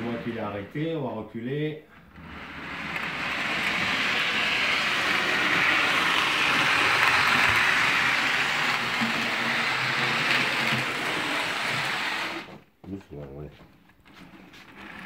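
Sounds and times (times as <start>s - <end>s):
model train motor and wheels on rails: 2.1s - 12.6s, 14.6s - 15.0s.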